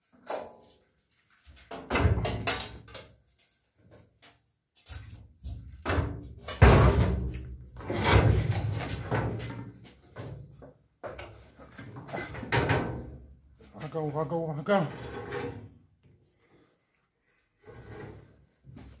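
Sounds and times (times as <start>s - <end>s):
metal knocks scrapes and clunks: 5.8s - 10.5s, 11.1s - 15.9s, 17.6s - 19.0s.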